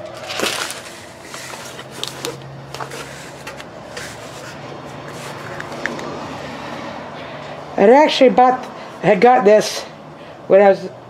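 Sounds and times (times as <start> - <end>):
plastic sheet rustling: 0.0 - 5.6.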